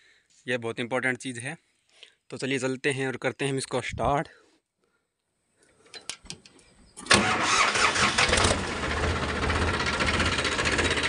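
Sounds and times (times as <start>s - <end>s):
diesel tractor engine idling: 7.1s - 11.0s.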